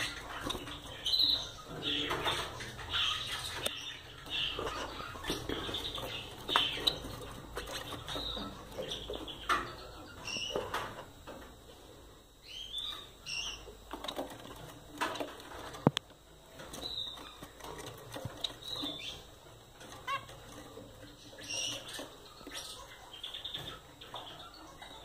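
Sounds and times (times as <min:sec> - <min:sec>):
finches chirping: 0:00.0 - 0:25.0
birds rustling in cage: 0:13.9 - 0:23.0.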